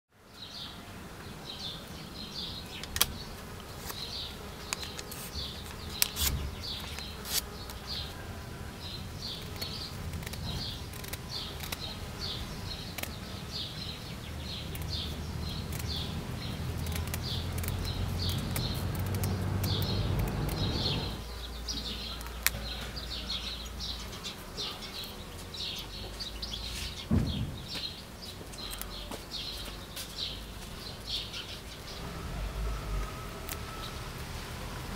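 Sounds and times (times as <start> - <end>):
sharp clicks: 9.4 - 11.9, 12.9 - 13.2, 14.6 - 21.2.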